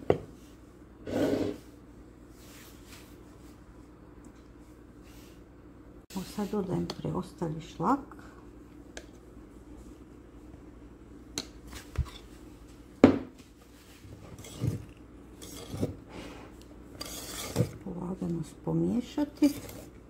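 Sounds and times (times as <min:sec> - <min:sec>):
utensil scraping ceramic bowl: 0:01.0 - 0:01.6, 0:14.2 - 0:16.3, 0:16.9 - 0:17.8, 0:19.3 - 0:20.0
wire whisk stirring: 0:14.4 - 0:16.0, 0:17.0 - 0:17.8.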